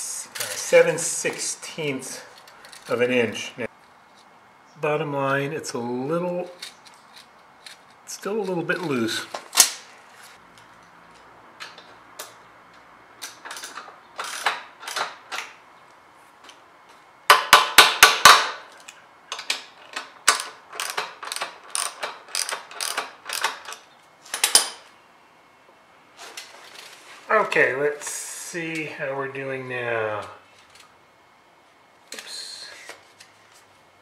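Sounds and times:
wrench clicking on axle nut: 0:13.2 - 0:15.5, 0:17.3 - 0:24.7.

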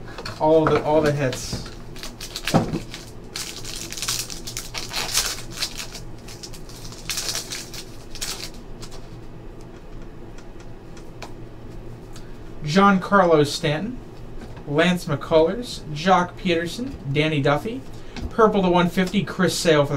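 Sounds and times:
cards clicking and rustling: 0:01.0 - 0:09.2
foil wrapper crinkling and tearing: 0:01.7 - 0:09.2.

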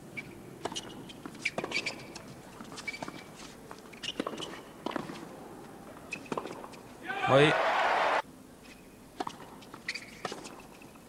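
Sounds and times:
shoe squeaks: 0:00.2 - 0:05.2, 0:06.1 - 0:06.9, 0:09.8 - 0:10.9.

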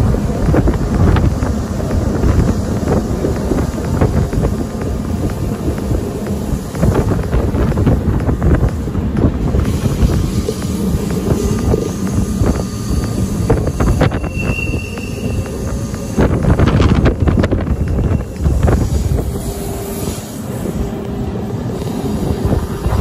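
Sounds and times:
train clicks: 0:00.0 - 0:23.0
wheels rumbling on rails: 0:00.0 - 0:23.0
wind on microphone: 0:00.0 - 0:23.0
high wheel squeal: 0:09.7 - 0:20.9.

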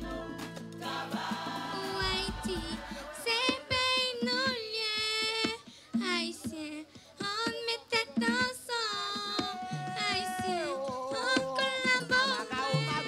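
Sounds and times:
girl singing into a microphone: 0:01.8 - 0:13.0.

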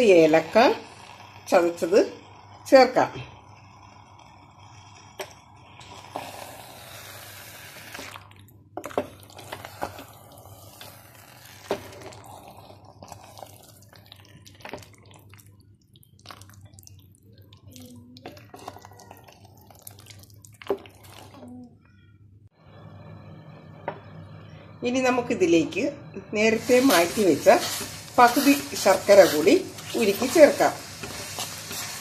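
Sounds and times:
wet squelching and bubbling: 0:07.8 - 0:21.7
spatula stirring sticky mash: 0:08.8 - 0:21.4, 0:26.6 - 0:32.0.

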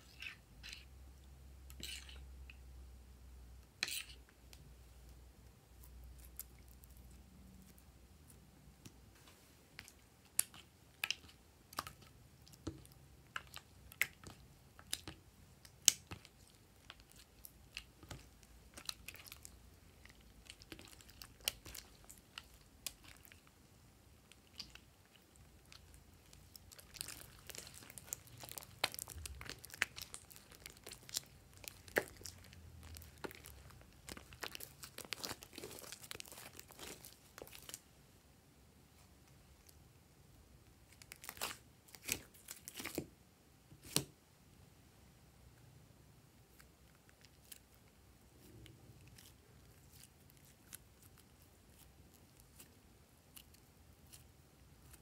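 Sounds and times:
slime squeezed and stretched: 0:25.6 - 0:37.8.

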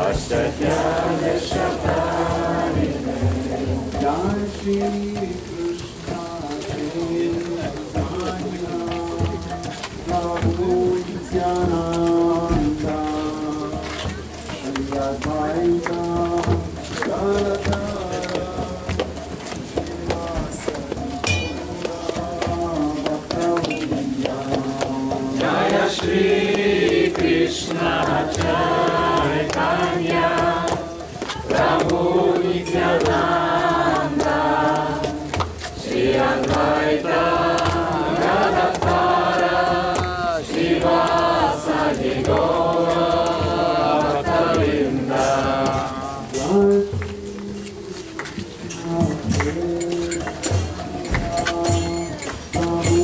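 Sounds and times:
group chanting: 0:00.0 - 0:04.8, 0:20.5 - 0:46.8
devotional music with singing: 0:00.0 - 0:53.0
sharp percussion strokes: 0:00.0 - 0:53.0.

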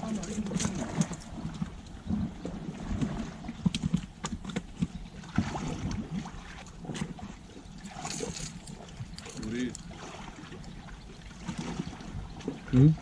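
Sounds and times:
water lapping against rocks: 0:00.0 - 0:13.0.

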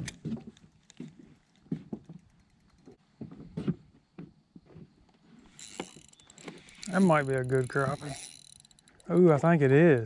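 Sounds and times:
light knocks and thumps in boat: 0:00.0 - 0:07.0.

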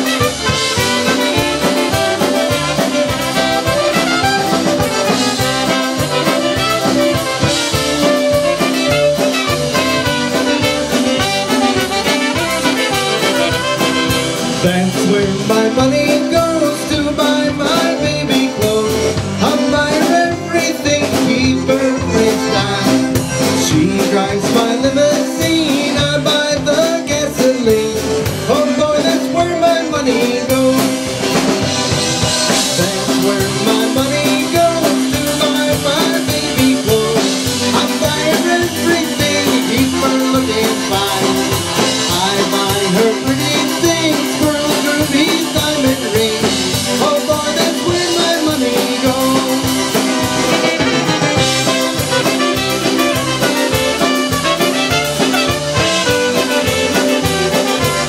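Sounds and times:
drums: 0:00.0 - 0:58.0
live band playing: 0:00.0 - 0:58.0
man singing into microphone: 0:12.4 - 0:31.3, 0:32.5 - 0:50.2.

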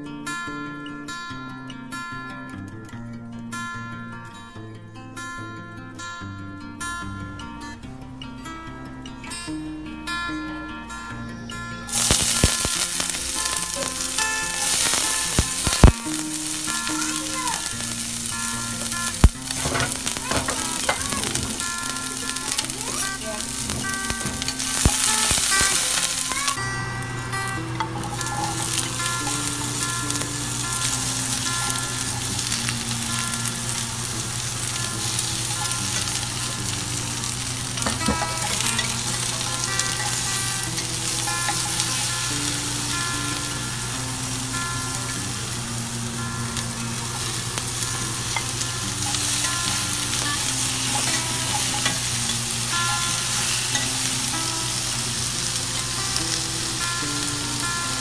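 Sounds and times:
soft instrumental music: 0:00.0 - 0:58.0
vegetables sizzling in hot oil: 0:11.9 - 0:58.0.

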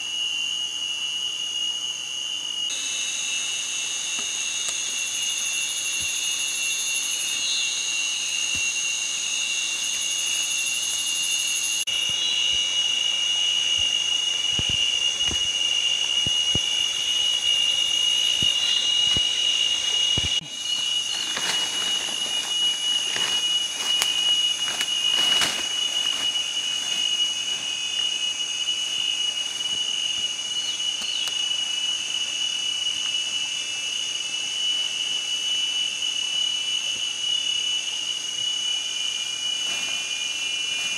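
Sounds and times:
shrill insect chorus: 0:00.0 - 0:40.9
hand digging in soil: 0:20.2 - 0:28.1.

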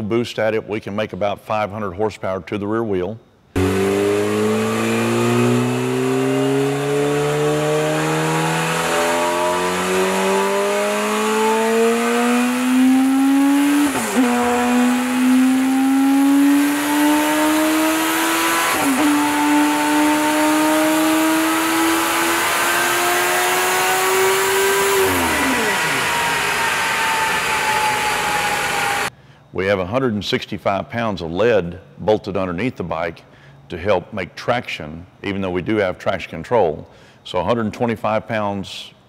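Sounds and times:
motorcycle engine revving: 0:03.6 - 0:29.1.

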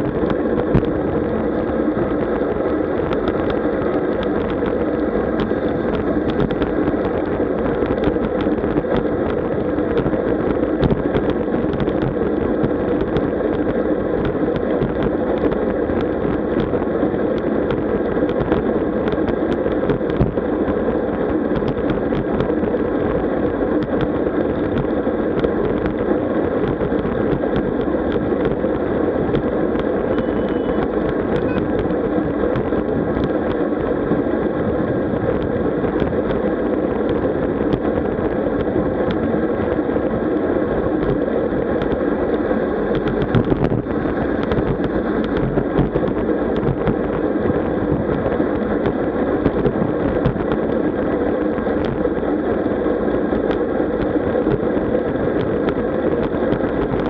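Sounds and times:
road rumble: 0:00.0 - 0:57.0
wind: 0:00.0 - 0:57.0.

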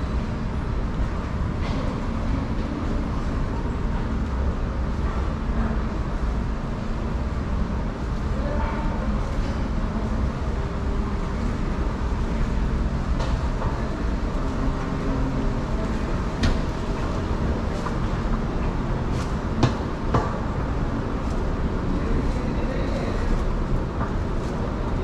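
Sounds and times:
moving walkway rumble: 0:00.0 - 0:25.0.

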